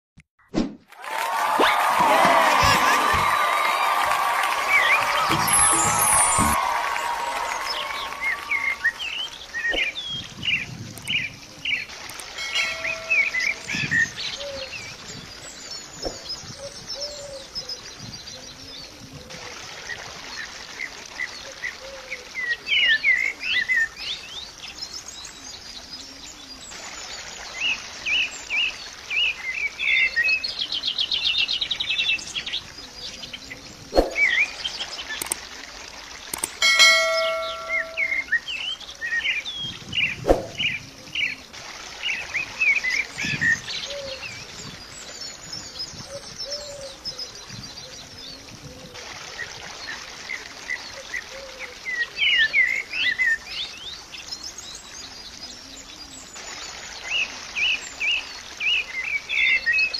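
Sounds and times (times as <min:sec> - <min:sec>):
sharp clicks: 0:35.2 - 0:35.4, 0:36.3 - 0:36.6
songbirds chirping and singing: 0:36.3 - 0:41.5
rapid bird trill: 0:36.6 - 0:38.4.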